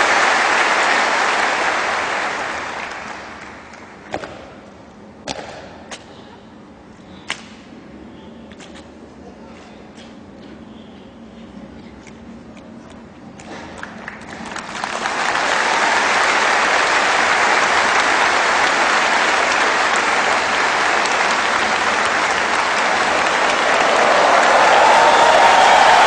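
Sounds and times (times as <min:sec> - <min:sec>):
audience applause: 0:00.0 - 0:03.9, 0:13.8 - 0:26.0.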